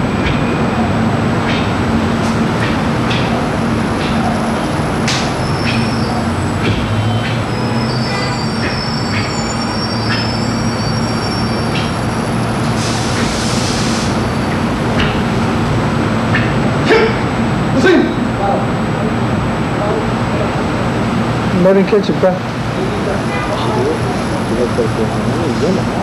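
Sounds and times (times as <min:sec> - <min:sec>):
loud rumble and mains hum: 0:00.0 - 0:26.0
high thin squeal: 0:06.9 - 0:14.6.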